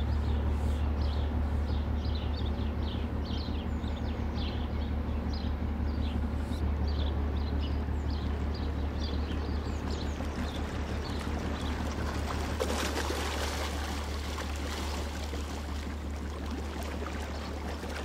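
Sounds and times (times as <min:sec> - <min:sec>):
small birds chirping: 0:00.0 - 0:12.5
ship engine hum: 0:00.0 - 0:18.0
water washing along hull: 0:09.0 - 0:18.0.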